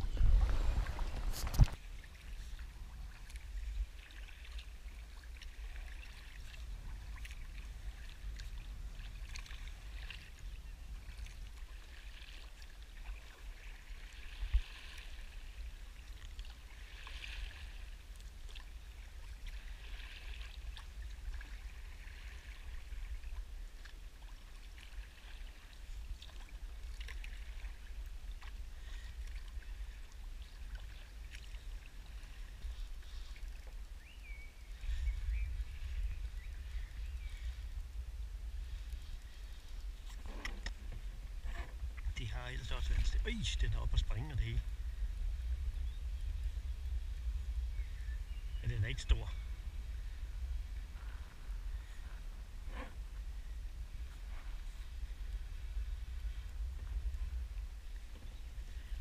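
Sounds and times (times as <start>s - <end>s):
wind on microphone: 0.0s - 4.1s, 32.0s - 59.0s
kayak paddle splashing in water: 0.0s - 33.8s.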